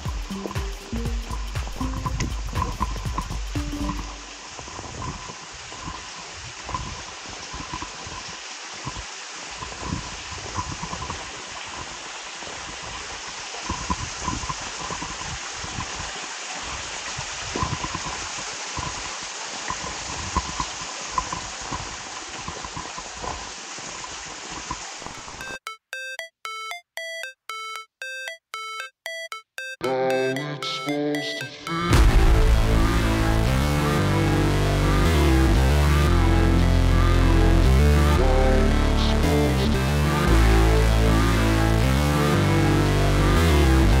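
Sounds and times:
small ticks and low knocks: 0:00.0 - 0:06.1
stream rushing over rocks: 0:01.7 - 0:25.4.

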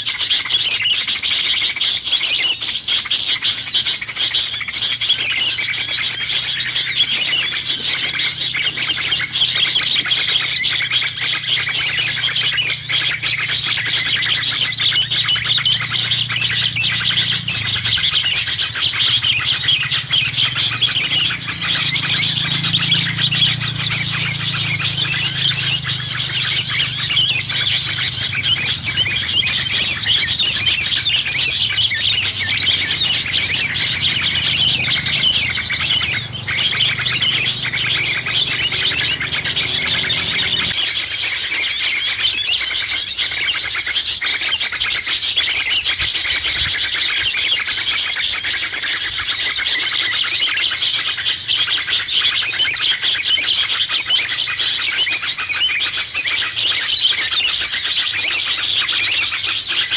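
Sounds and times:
small birds chirping: 0:00.0 - 0:41.0.

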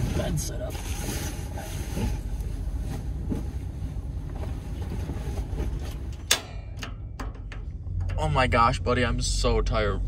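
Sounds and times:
sleeping bag rustling: 0:00.0 - 0:06.0.

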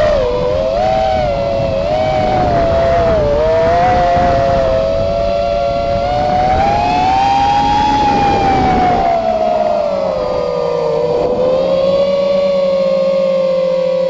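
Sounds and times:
rough rushing noise: 0:00.0 - 0:13.2
quadcopter motors whining: 0:00.0 - 0:14.0.

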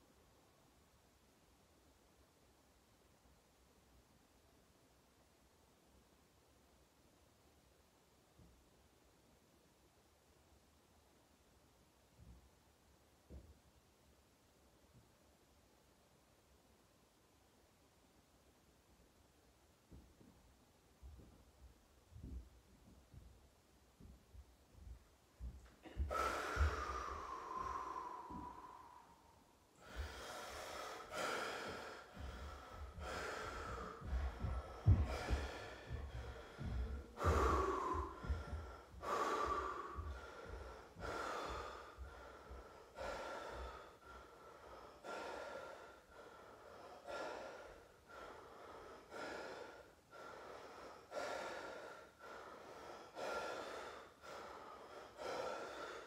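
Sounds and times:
man breathing heavily: 0:24.7 - 0:56.0.

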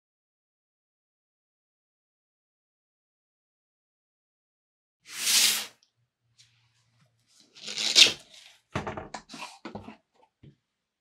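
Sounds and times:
rustling scrape of a box: 0:05.1 - 0:05.7.

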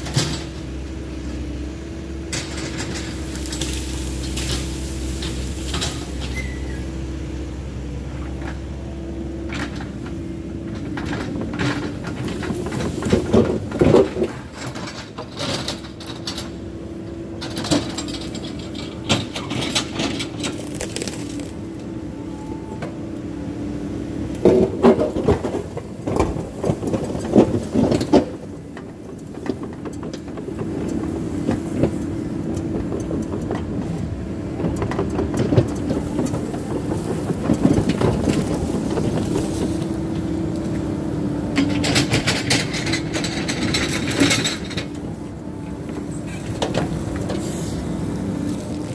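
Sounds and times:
excavator diesel engine running: 0:00.0 - 0:48.9
clanking and cracking: 0:17.4 - 0:21.6, 0:41.5 - 0:45.1.

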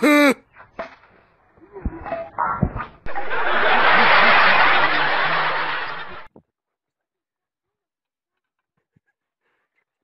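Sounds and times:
brief voice sounds: 0:00.0 - 0:00.4
loud laughter: 0:03.1 - 0:06.3.

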